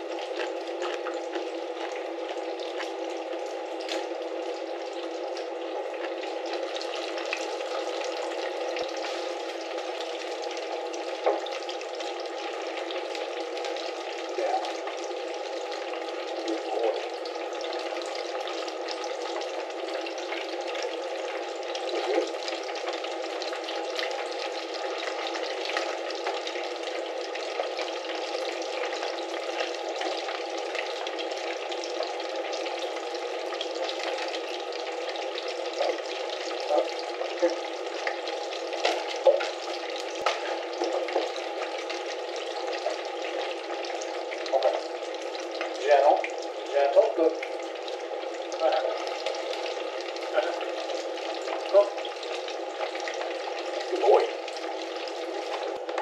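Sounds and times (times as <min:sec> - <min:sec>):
oil popping: 0:00.0 - 0:32.8
food sizzling in hot oil: 0:00.0 - 0:56.0.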